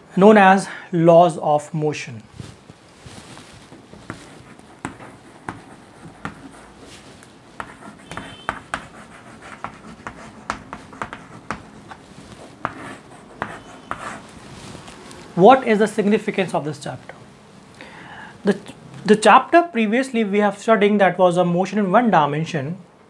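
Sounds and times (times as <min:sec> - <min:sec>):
chalk tapping and scratching on chalkboard: 0:03.9 - 0:14.4.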